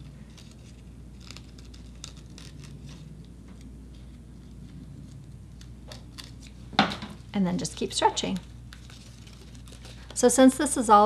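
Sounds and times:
scissors snipping paper: 0.0s - 4.1s, 5.0s - 6.6s
thin paper crinkling: 0.0s - 6.7s, 7.6s - 10.8s.

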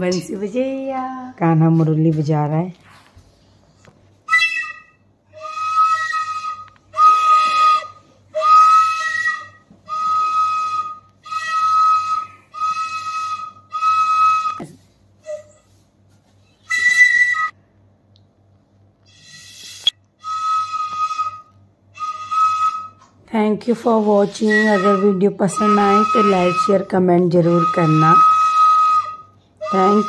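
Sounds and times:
flute melody: 4.2s - 17.6s, 19.1s - 23.1s, 23.9s - 30.0s.

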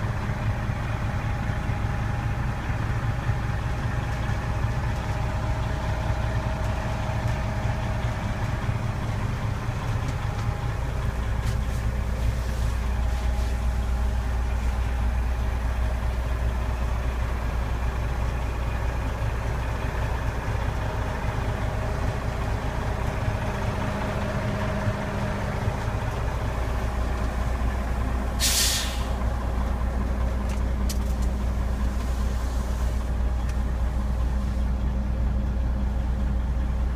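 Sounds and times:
truck engine idling: 0.0s - 36.9s
compressed air hiss: 28.4s - 29.2s.

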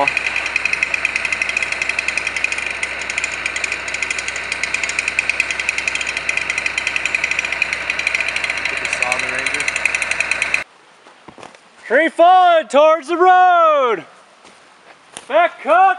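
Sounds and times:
chainsaw running: 0.0s - 10.6s.

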